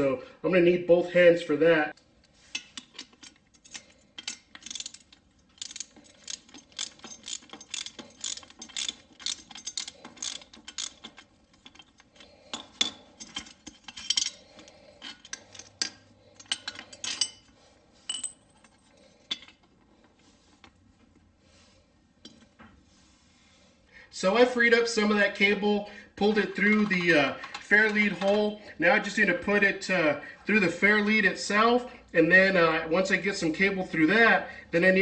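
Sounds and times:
winch drum clicking and rattling: 2.7 - 17.2.

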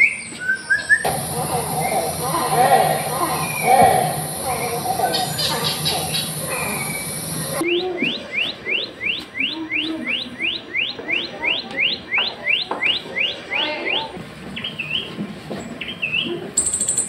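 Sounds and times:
recorded bird whistles: 0.0 - 13.6
whistled bird notes: 0.0 - 14.0.

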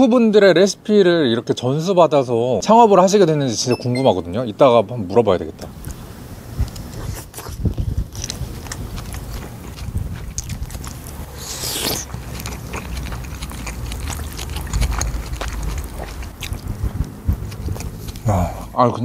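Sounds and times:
close chewing: 5.6 - 18.8
wet mouth clicks: 6.6 - 18.3
airy slurp: 6.8 - 18.3.

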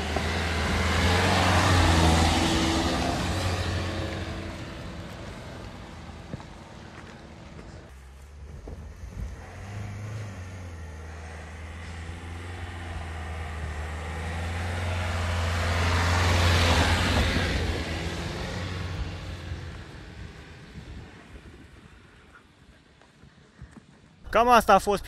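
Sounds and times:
car engine hum: 0.0 - 21.8.

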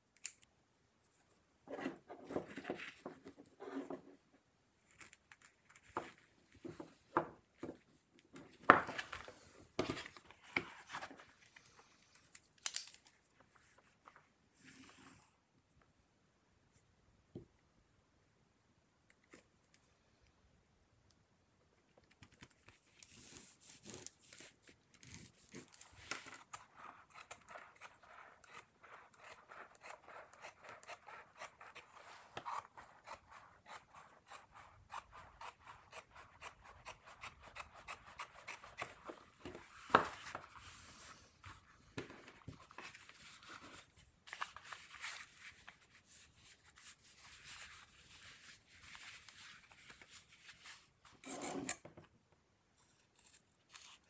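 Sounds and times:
scissors snipping leather: 26.3 - 39.0.

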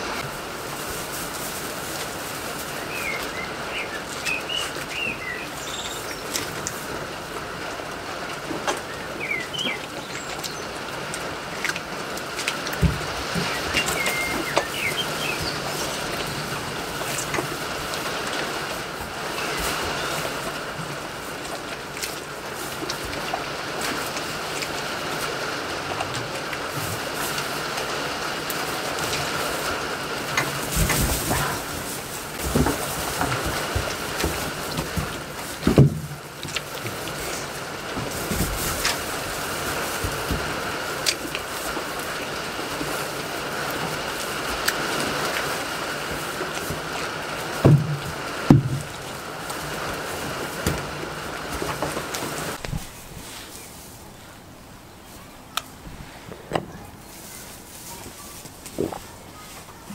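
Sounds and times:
rain on metal roof: 0.0 - 52.8
small birds chirping: 2.5 - 6.9, 8.5 - 11.8, 12.8 - 18.8.

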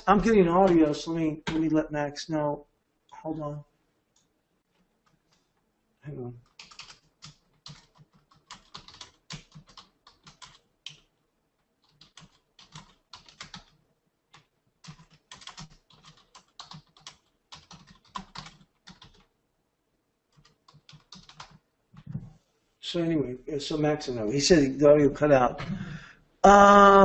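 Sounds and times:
typing on keyboard: 6.4 - 11.1, 11.8 - 19.3, 20.3 - 22.1.

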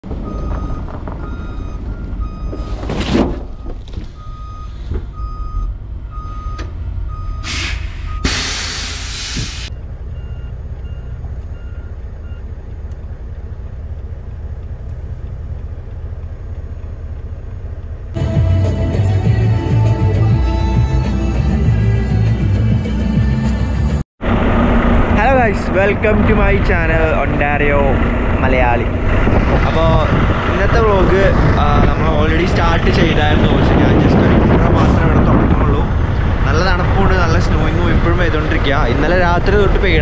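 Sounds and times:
low engine rumble: 0.0 - 40.0
truck reverse alarm beeping: 0.2 - 12.6
air brake hiss: 7.4 - 9.7.

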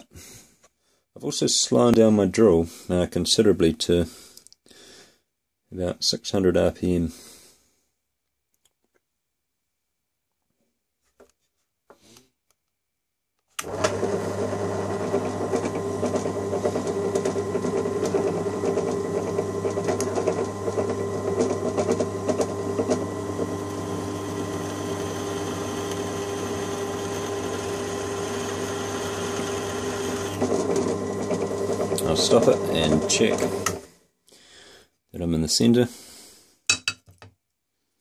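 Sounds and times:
drill bit cutting metal: 13.6 - 33.8
drill press running: 13.6 - 33.9.

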